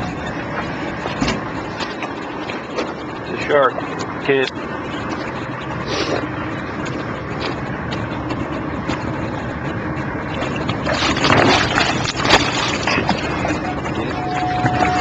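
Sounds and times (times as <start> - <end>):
shark thrashing and splashing: 7.4 - 15.0
wind and water rushing: 8.0 - 15.0.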